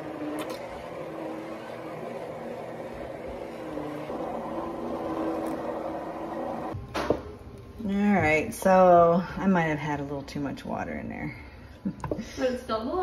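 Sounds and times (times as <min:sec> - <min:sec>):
immersion blender running: 0:00.0 - 0:06.8.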